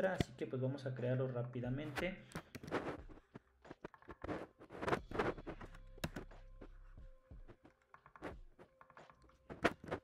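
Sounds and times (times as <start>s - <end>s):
keyboard and mouse clicks: 2.3s - 2.8s, 5.6s - 6.3s, 7.5s - 10.0s.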